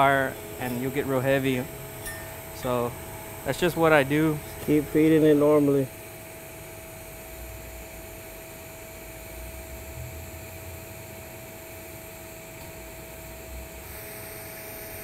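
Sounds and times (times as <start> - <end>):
welding arc hissing: 0.0 - 5.7
faint hum: 0.0 - 15.0.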